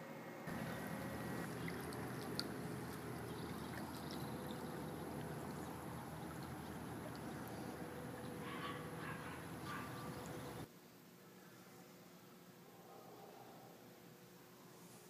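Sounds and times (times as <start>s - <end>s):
water rushing over pool edge: 0.5s - 10.7s.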